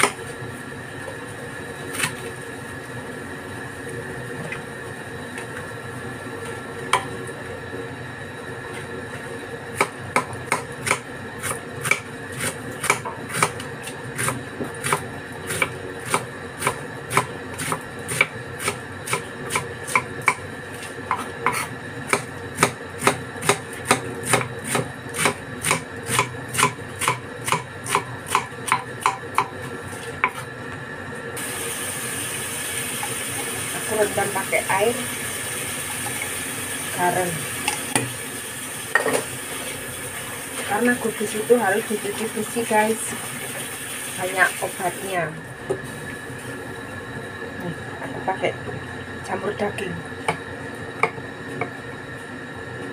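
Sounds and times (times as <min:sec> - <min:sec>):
knife slicing cabbage on board: 0:09.8 - 0:13.6, 0:21.1 - 0:30.5
running tap water: 0:31.4 - 0:46.8.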